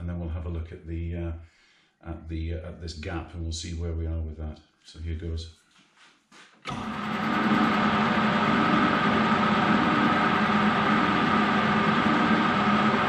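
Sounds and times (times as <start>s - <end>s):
metal lathe running with whine: 6.7s - 13.0s.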